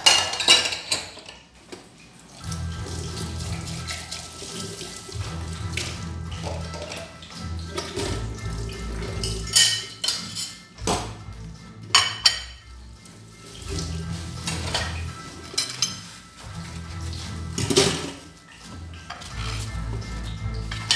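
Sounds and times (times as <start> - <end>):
dishes and cutlery clattering: 0.0 - 1.6, 5.8 - 11.2, 11.9 - 12.8, 13.5 - 20.9.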